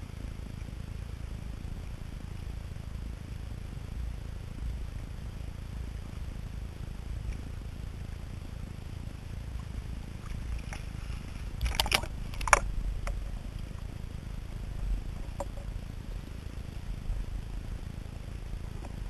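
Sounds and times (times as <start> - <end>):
dull underwater rumble: 0.0 - 19.0
water sloshing against camera housing: 11.6 - 13.2.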